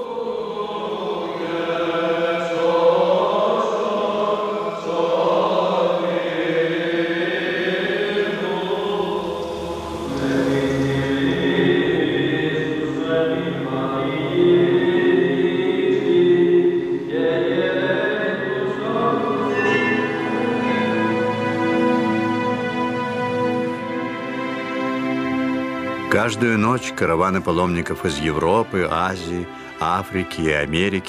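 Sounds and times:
male voices chanting: 0:00.0 - 0:21.4
low sustained drone note: 0:08.0 - 0:16.0, 0:18.4 - 0:25.8.

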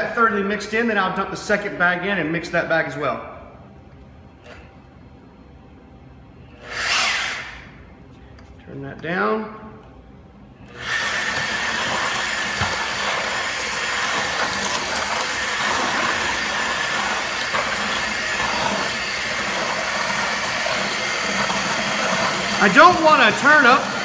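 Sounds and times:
paddle mixer motor whining: 0:10.6 - 0:24.0
paddle churning cement mix: 0:10.7 - 0:24.0.

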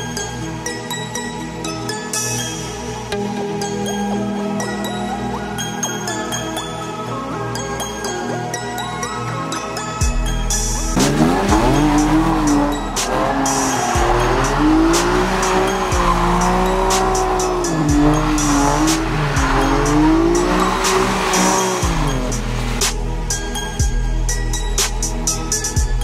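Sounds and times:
music with steady beat: 0:10.0 - 0:26.0
car engine revving: 0:10.8 - 0:23.3
tyres squealing: 0:11.0 - 0:22.8.

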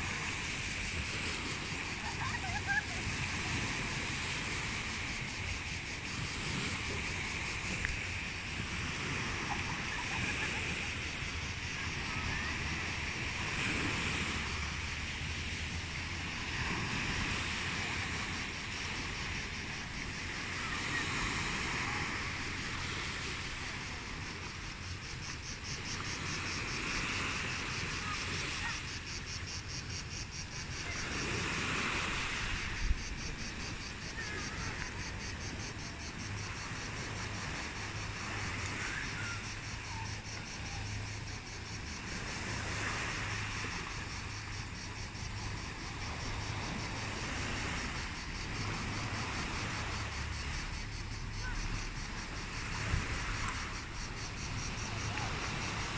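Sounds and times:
insects chirping: 0:00.0 - 0:55.9
sea waves washing against rocks: 0:30.5 - 0:55.9.

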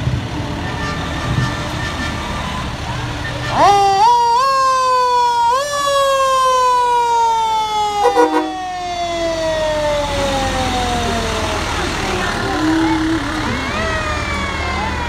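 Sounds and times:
fire engine siren: 0:00.0 - 0:15.0
heavy truck engine rumbling: 0:00.0 - 0:15.0
short horn blast: 0:08.0 - 0:08.7.

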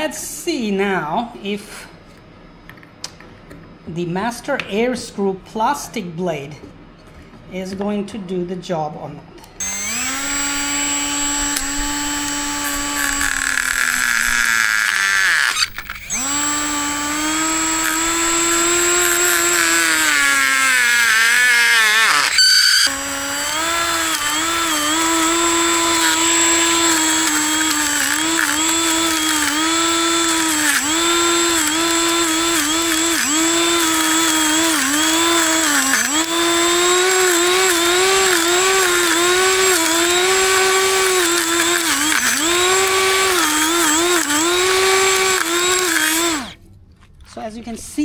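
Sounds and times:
drone motor high whine: 0:09.6 - 0:46.6.

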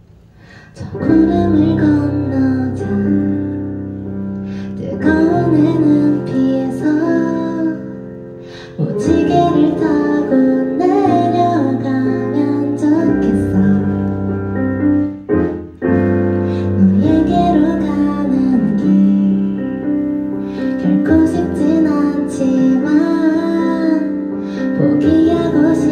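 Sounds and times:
keyboard accompaniment: 0:00.5 - 0:25.9
woman singing gently: 0:08.8 - 0:14.1.

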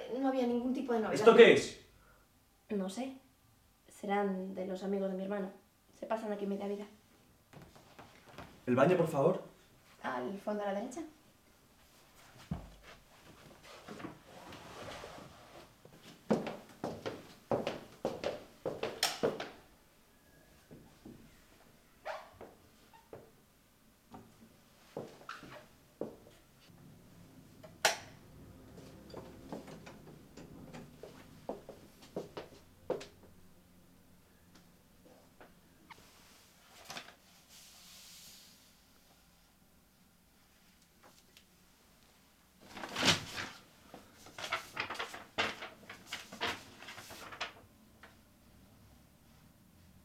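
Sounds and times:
soft footsteps: 0:07.5 - 0:08.7, 0:11.7 - 0:19.6, 0:24.1 - 0:26.8, 0:28.6 - 0:33.4
paper rustling: 0:42.6 - 0:47.6.

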